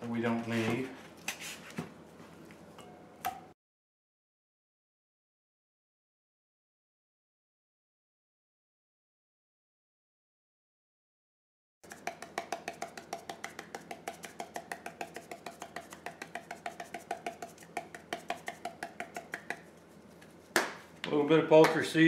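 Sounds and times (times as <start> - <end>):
spice shaker rattling: 11.8 - 20.5.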